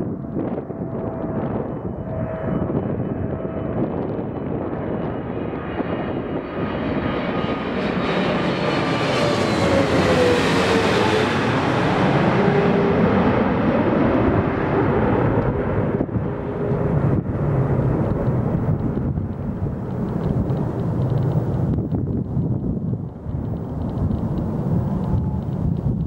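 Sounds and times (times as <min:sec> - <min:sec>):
jet airliner passing overhead: 0:00.0 - 0:26.0
whining tones sliding down: 0:06.9 - 0:15.6.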